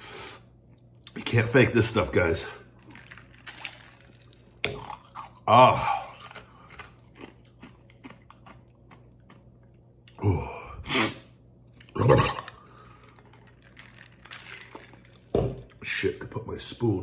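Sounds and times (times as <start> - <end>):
man exhaling and groaning: 10.2 - 11.2.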